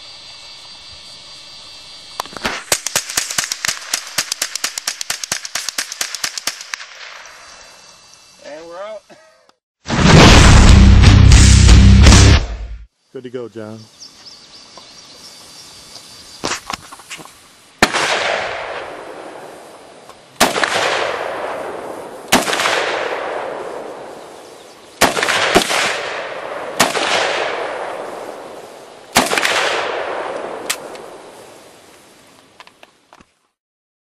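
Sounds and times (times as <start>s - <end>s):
faint sharp cracks: 2.2s - 7.2s, 29.1s - 31.2s
rifle shots echoing: 2.6s - 7.2s, 17.8s - 19.6s, 20.4s - 24.4s, 25.0s - 31.3s.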